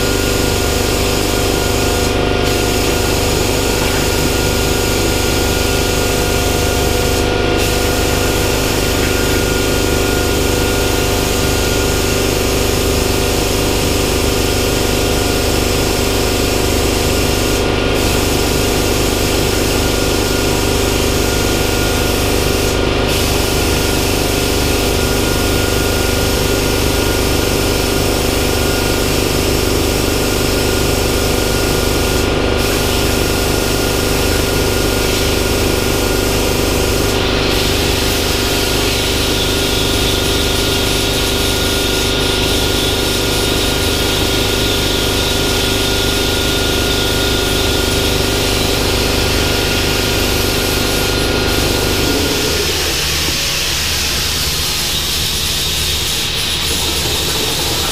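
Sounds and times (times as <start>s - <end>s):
plasma cutter arc hissing: 0.0s - 57.9s.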